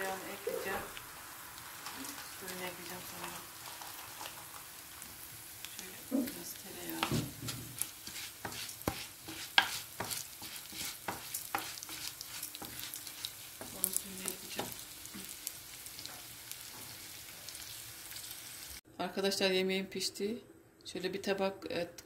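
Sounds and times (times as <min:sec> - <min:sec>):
butter sizzling: 0:00.0 - 0:18.8
rice rustling: 0:00.0 - 0:18.8
spoon knocking and scraping pot: 0:07.0 - 0:15.3.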